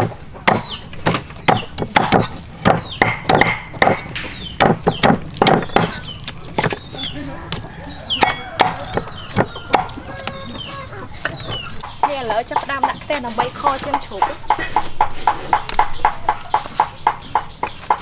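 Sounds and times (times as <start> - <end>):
cleaver chopping on wooden block: 0.0 - 6.9, 7.6 - 10.4.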